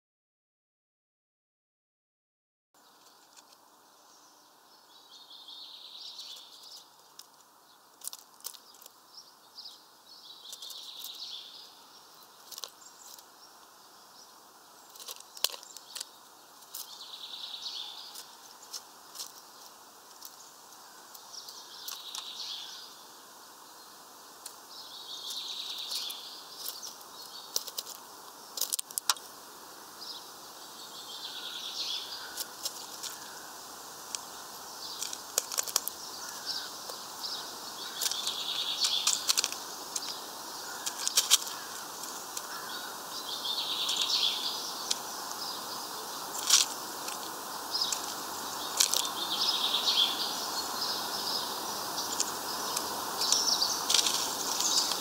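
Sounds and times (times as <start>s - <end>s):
birds chirping: 2.8s - 55.0s
bird pecking on wooden tray: 35.0s - 36.6s, 37.8s - 42.9s.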